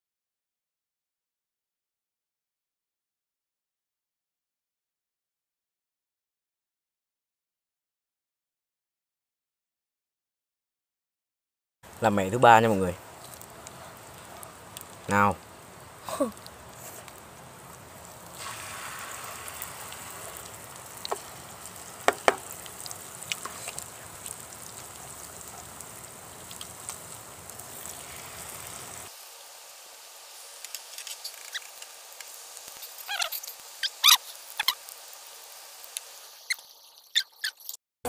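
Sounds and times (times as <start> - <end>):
oil popping and crackling: 11.9 - 29.2, 30.4 - 37.8
pancakes sizzling in oil: 11.9 - 37.7.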